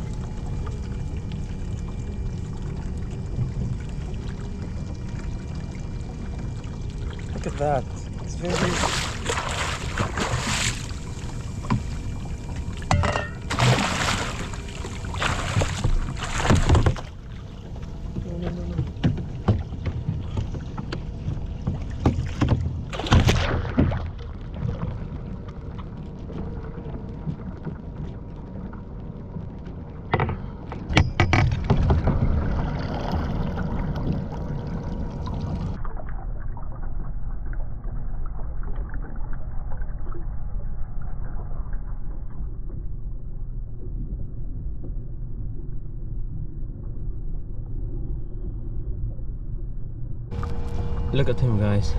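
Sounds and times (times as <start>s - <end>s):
low wash of water: 0.0s - 30.9s, 31.5s - 51.9s
fish thrashing and splashing: 8.4s - 11.4s, 12.9s - 17.2s, 21.9s - 24.9s.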